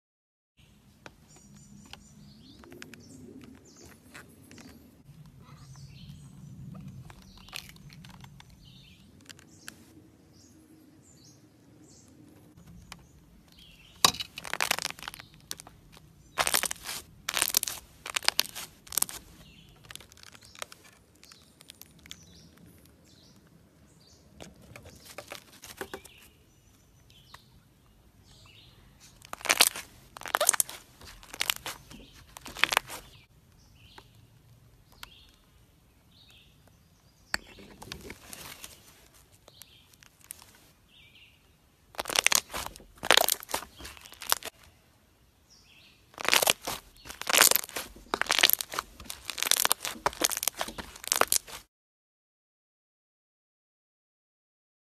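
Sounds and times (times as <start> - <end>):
slime squishing and popping: 14.0 - 22.4, 29.2 - 33.1, 42.0 - 44.6, 46.2 - 51.6.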